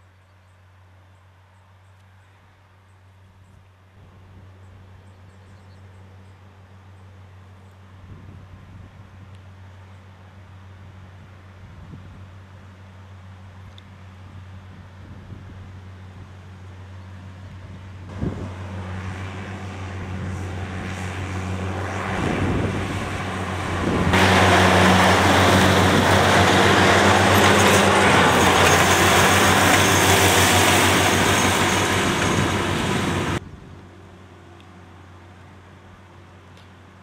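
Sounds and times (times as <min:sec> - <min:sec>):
mowers cutting grass: 0:18.0 - 0:33.4
tractor engine running: 0:18.0 - 0:36.9.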